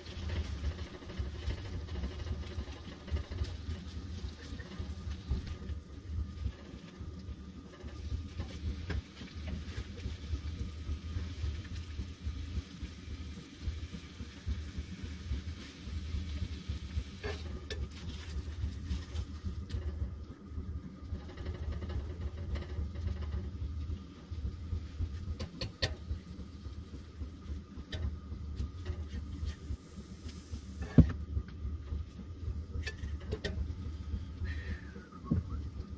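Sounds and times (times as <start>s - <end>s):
camp stove low hum: 0.0s - 35.9s.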